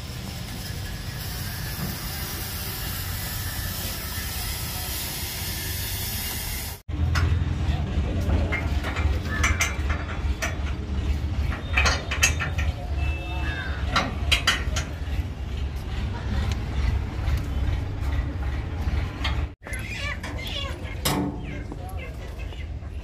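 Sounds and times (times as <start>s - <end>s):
low machine hum: 5.8s - 20.2s
knocks and clinks: 8.2s - 13.2s, 13.8s - 15.3s.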